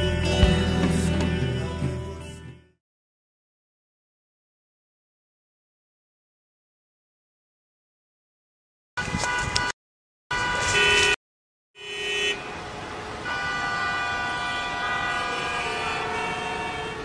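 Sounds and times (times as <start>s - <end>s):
car horn honking: 9.0s - 11.2s, 11.8s - 17.0s
street noise: 9.0s - 11.2s, 11.8s - 17.0s.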